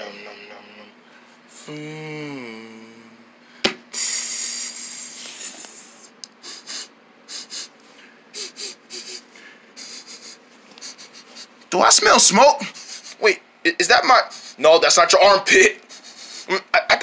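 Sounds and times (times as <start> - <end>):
person humming: 1.6 - 3.3.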